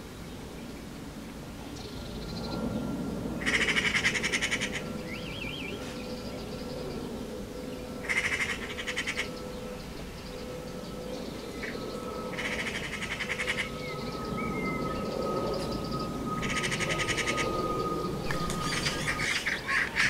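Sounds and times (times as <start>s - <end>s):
magpie chattering rattle: 8.0s - 9.3s, 18.3s - 20.0s.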